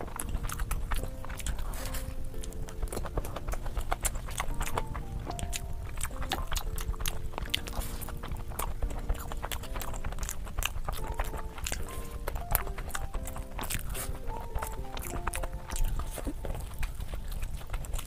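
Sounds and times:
simple background melody: 0:00.0 - 0:18.0
wet chewing and mouth clicks: 0:00.0 - 0:18.0.

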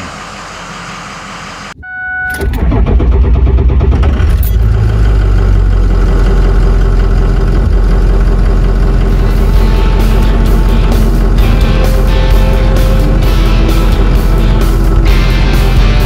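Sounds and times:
diesel truck engine starting: 0:00.0 - 0:16.0
two-tone beep: 0:01.8 - 0:02.5
engine idling: 0:02.4 - 0:16.0.

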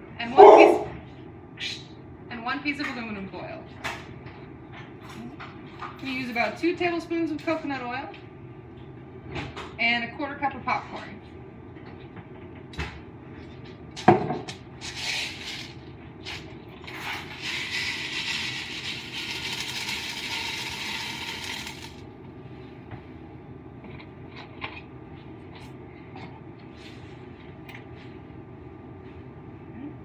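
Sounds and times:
popcorn kernels rattling into pot: 0:17.2 - 0:22.0.

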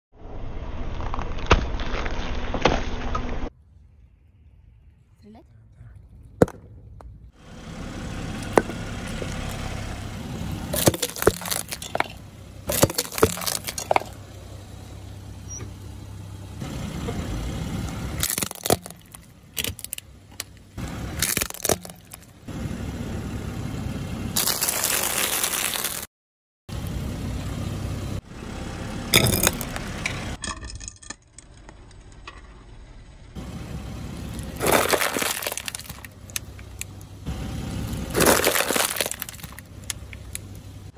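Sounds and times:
plastic cracking under car tyre: 0:01.0 - 0:03.4, 0:10.7 - 0:14.2, 0:18.2 - 0:20.6, 0:21.2 - 0:22.3, 0:24.4 - 0:26.1, 0:34.3 - 0:37.1, 0:37.9 - 0:40.6
car rolling with low rumble: 0:03.0 - 0:24.8, 0:26.7 - 0:40.9.

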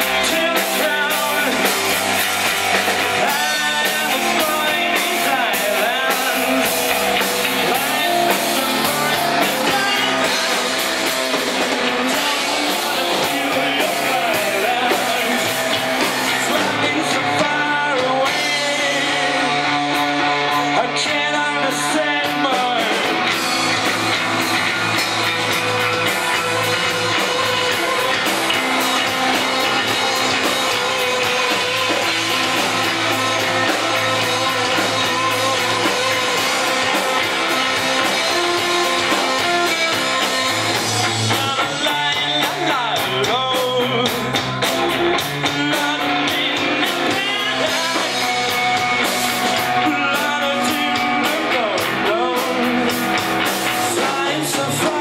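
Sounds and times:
bass guitar: 0:00.0 - 0:55.0
drum kit: 0:00.0 - 0:55.0
electric guitar: 0:00.0 - 0:55.0
person singing: 0:00.0 - 0:55.0.

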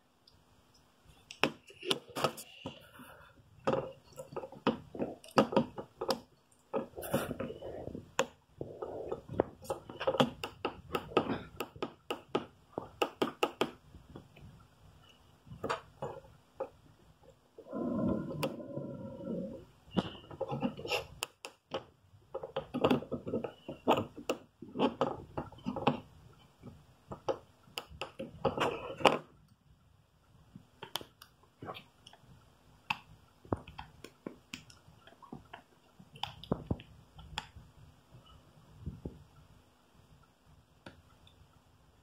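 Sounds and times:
fingers clicking and tapping phone: 0:03.6 - 0:16.8, 0:19.9 - 0:29.3, 0:30.7 - 0:39.2.

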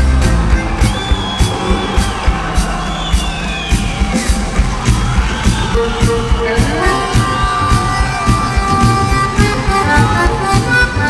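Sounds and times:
bass: 0:00.0 - 0:11.0
drumbeat with cymbal and snare: 0:00.0 - 0:11.0
high sliding notes: 0:00.8 - 0:04.8
button accordion: 0:05.8 - 0:11.0.

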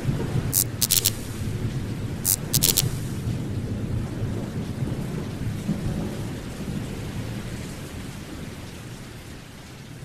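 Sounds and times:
steady hiss: 0:00.6 - 0:01.7, 0:02.3 - 0:03.4.

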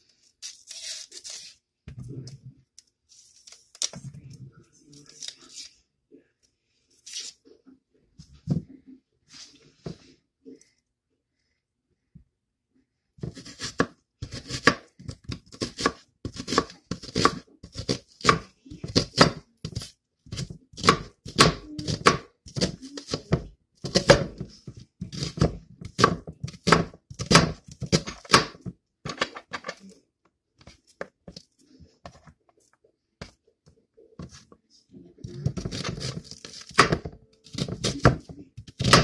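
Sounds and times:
knife chopping on plastic board: 0:13.2 - 0:29.4, 0:35.4 - 0:39.0.

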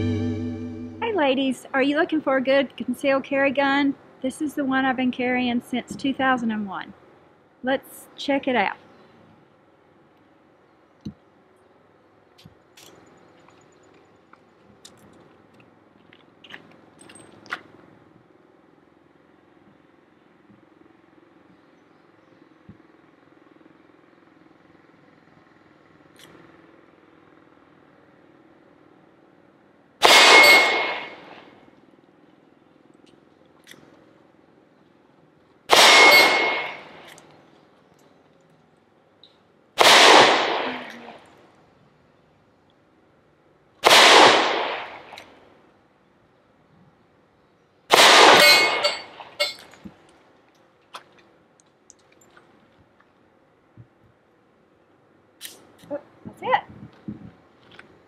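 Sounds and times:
faint low steady hum: 0:00.0 - 0:12.3
steel target clanging: 0:30.0 - 0:31.2, 0:35.7 - 0:36.9, 0:48.0 - 0:49.7.

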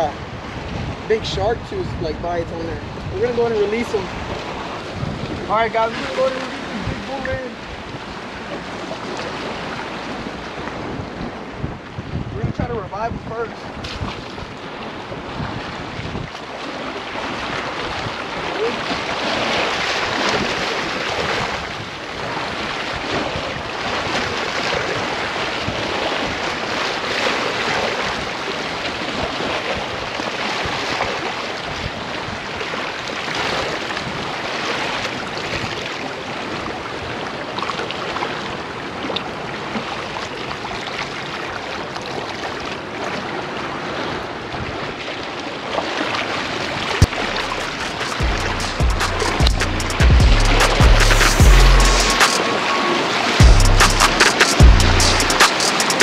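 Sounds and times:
wind buffeting microphone: 0:00.0 - 0:26.8
waves washing in: 0:00.0 - 0:56.0
sharp click: 0:53.8 - 0:54.6, 0:55.3 - 0:56.0.

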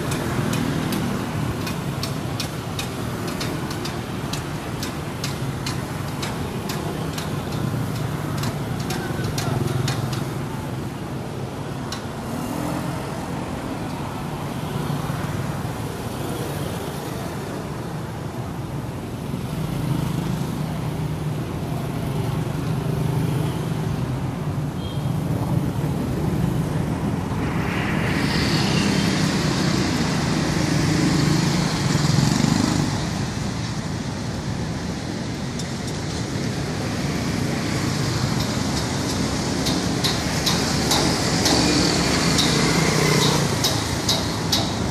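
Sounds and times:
motorbikes and scooters passing: 0:00.0 - 0:18.6, 0:19.2 - 0:44.9
high hiss: 0:26.5 - 0:33.0.

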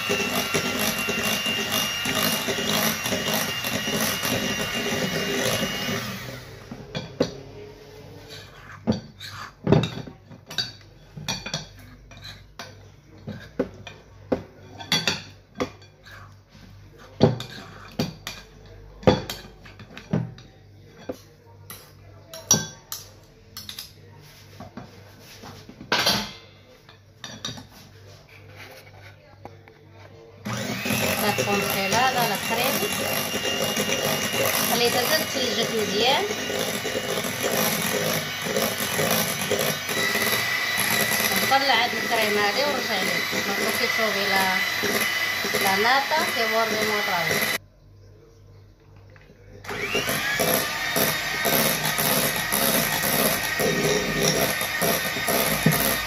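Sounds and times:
electric hand mixer running: 0:00.0 - 0:06.7, 0:30.4 - 0:47.6, 0:49.6 - 0:56.0.

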